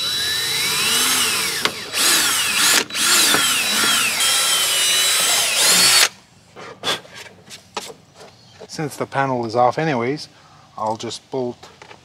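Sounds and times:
cordless drill motor whine: 0.0s - 6.1s.

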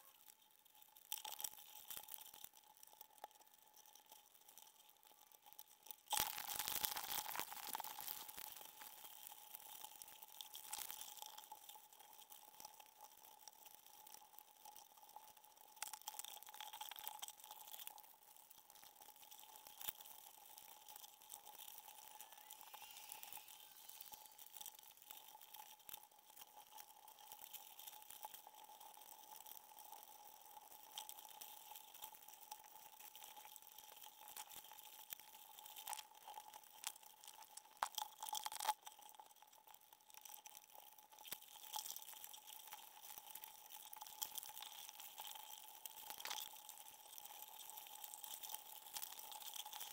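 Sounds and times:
underwater crackling and clicks: 0.0s - 49.9s
thin steady hum: 21.8s - 25.3s.

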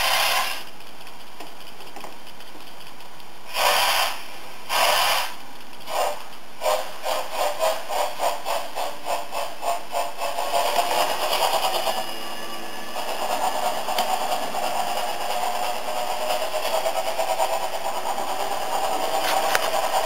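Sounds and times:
steam locomotive chuffs: 0.0s - 1.8s, 2.4s - 20.0s.

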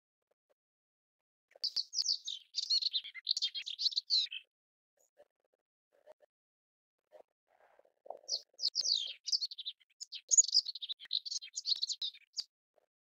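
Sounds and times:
warbler singing: 1.6s - 4.5s, 8.2s - 12.5s.

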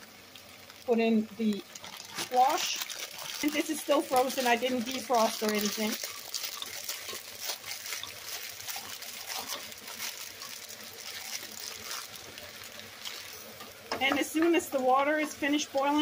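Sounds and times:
frozen vegetables sizzling in a pot: 0.0s - 16.0s
frozen cubes poured from plastic bag: 1.5s - 13.4s.

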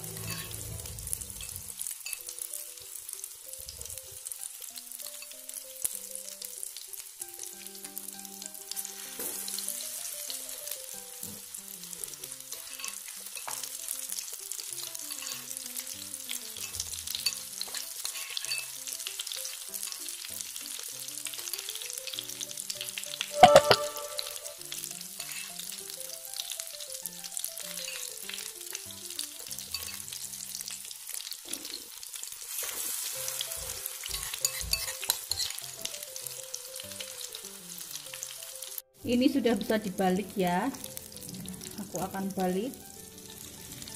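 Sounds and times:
food sizzling in oil: 0.0s - 43.9s.

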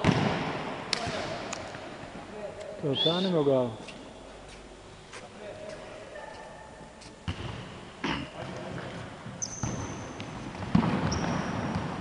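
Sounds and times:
ball kicks echoing thuds: 0.0s - 1.4s, 7.2s - 7.8s, 9.4s - 12.0s
shoe squeaks on floor: 9.4s - 10.2s, 11.0s - 11.7s.

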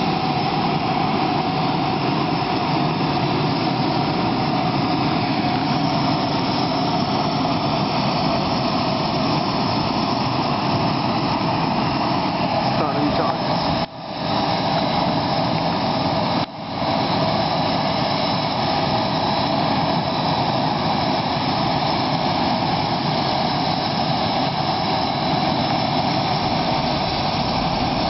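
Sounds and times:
high whine: 0.0s - 18.1s, 23.2s - 28.0s
jet turbine running: 0.0s - 28.0s.

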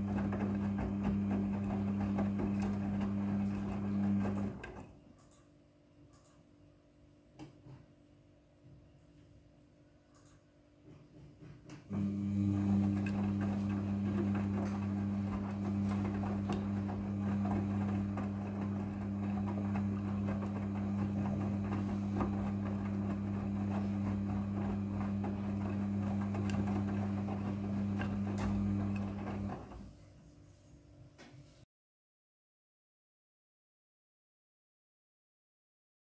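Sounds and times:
laundry tumbling in drum: 0.0s - 4.6s, 12.3s - 29.9s
washing machine motor humming: 0.0s - 5.0s, 11.9s - 30.0s.

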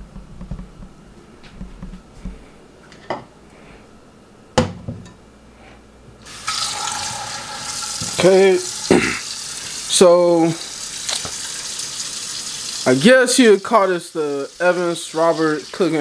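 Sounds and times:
tap water running into sink: 6.2s - 13.0s.

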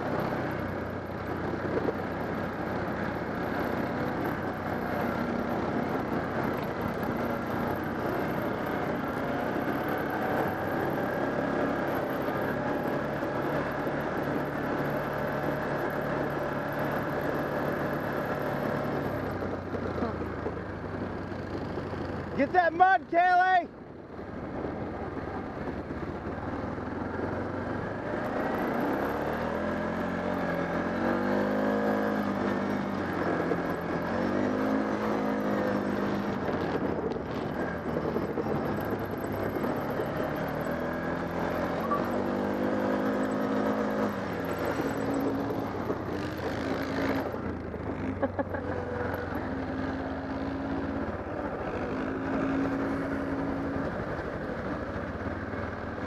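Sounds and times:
off-road vehicle engine revving: 0.0s - 22.7s, 25.6s - 56.0s.

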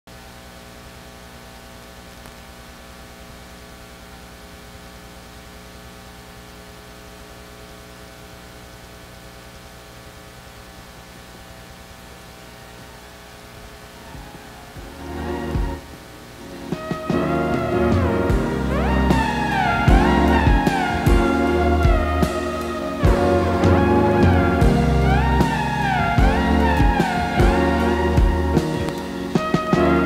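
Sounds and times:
electrical mains hum: 0.1s - 30.0s
music: 11.4s - 30.0s.

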